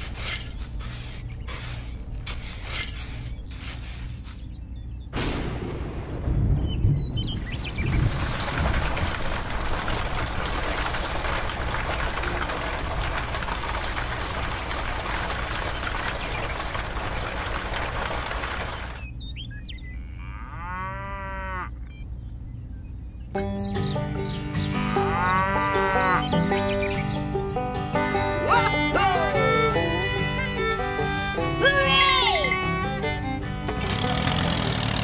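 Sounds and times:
rushing storm noise: 5.2s - 19.0s
cow mooing: 20.0s - 21.7s, 25.0s - 26.2s
music: 23.4s - 34.9s.

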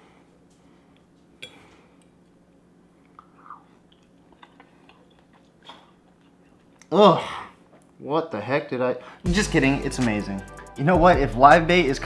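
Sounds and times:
person chewing food: 3.0s - 6.9s
wet mouth clicks: 3.0s - 6.9s.

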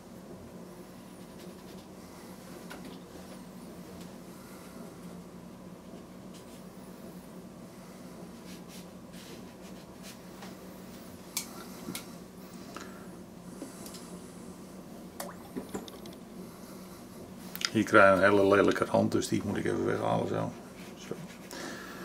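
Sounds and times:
steady low hum: 0.0s - 22.0s
brush scratching on paper: 1.1s - 1.9s, 8.4s - 10.2s, 20.4s - 21.5s.

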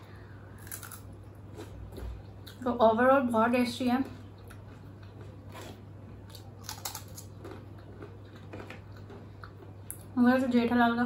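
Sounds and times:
chewing crispy snack: 0.6s - 2.6s, 4.1s - 10.1s.

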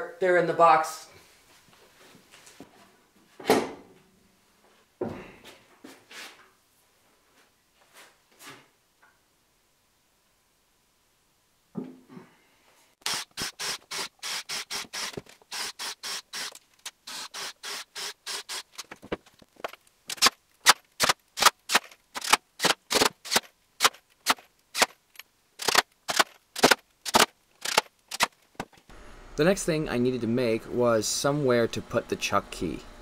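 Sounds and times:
cordless driver bursts: 13.0s - 18.8s.

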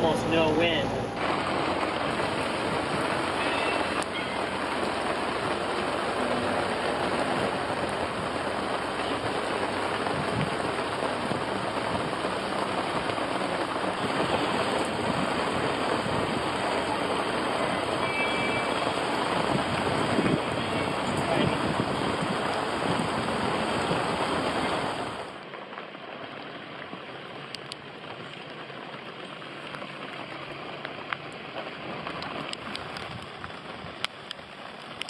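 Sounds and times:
heavy rain on the sea: 0.0s - 35.0s.

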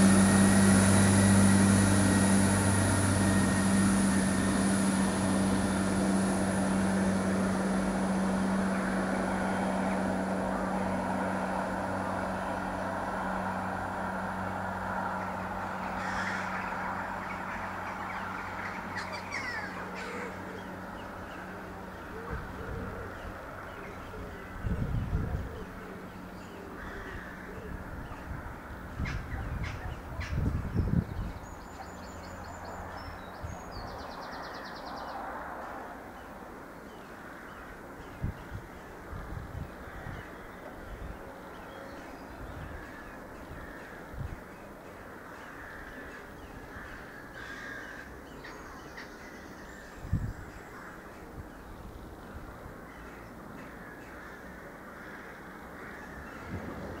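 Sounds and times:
diesel train engine hum: 0.0s - 47.4s
birds calling: 13.5s - 57.0s.

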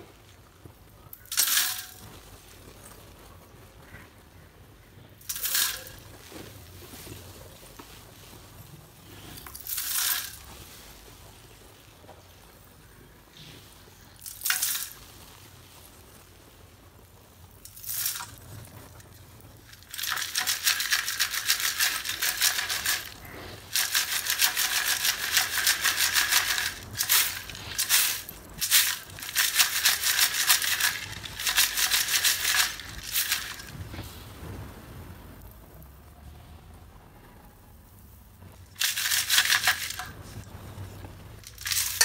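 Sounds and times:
clay pieces rattling in metal sieve: 1.2s - 2.2s, 5.2s - 7.2s, 9.3s - 10.7s, 14.1s - 15.3s, 17.7s - 18.8s, 19.7s - 34.0s, 38.7s - 40.5s, 41.4s - 42.0s.

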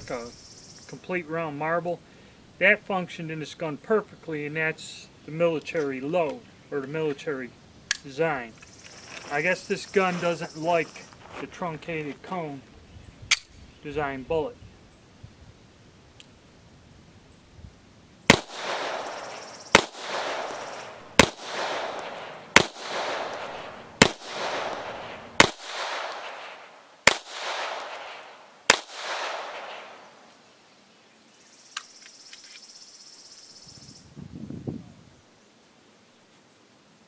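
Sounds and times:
pistol shots with echo: 18.3s - 30.1s.

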